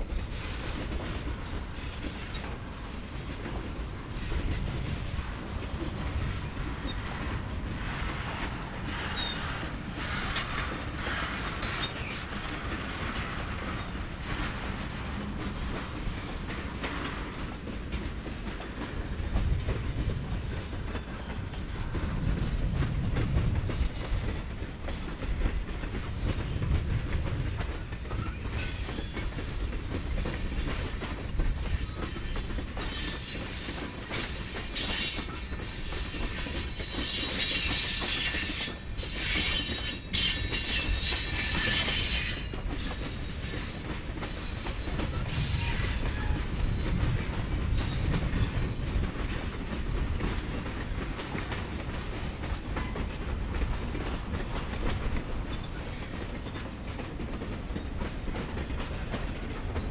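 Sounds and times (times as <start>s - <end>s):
freight train rumbling past: 0.0s - 59.9s
high wheel squeal: 32.0s - 47.0s.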